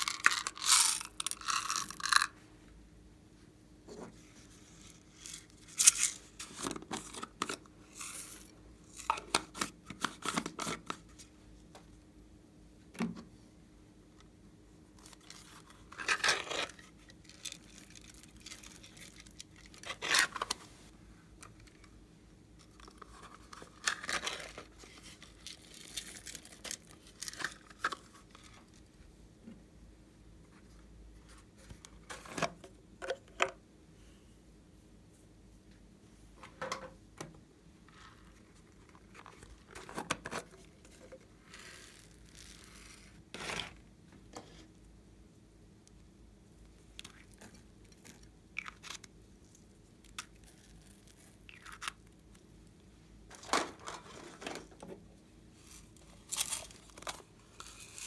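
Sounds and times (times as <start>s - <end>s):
plastic containers rustling and clicking: 53.3s - 55.1s.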